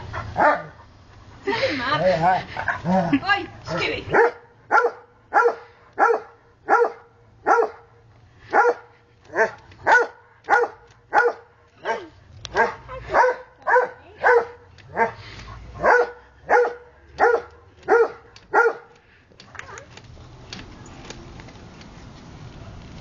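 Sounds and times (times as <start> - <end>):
dog barking: 0.4 - 0.8, 4.1 - 7.9, 8.5 - 15.2, 15.8 - 18.9.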